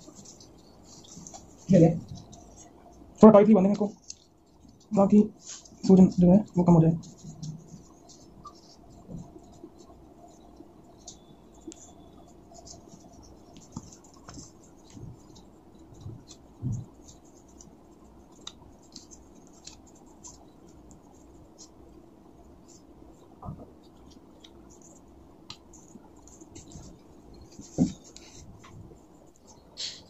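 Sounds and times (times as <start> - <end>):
bandage rustling and scratching: 0.0 - 30.0.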